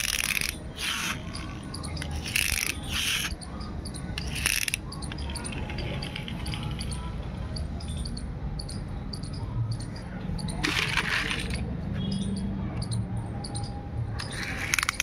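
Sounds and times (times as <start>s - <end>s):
toy cars clattering: 0.0s - 3.4s, 4.1s - 7.1s, 10.4s - 11.7s, 14.2s - 15.0s.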